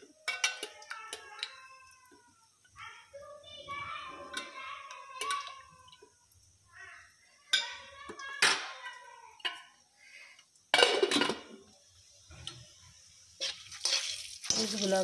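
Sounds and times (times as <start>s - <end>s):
metal lid clattering on pot: 10.8s - 11.6s.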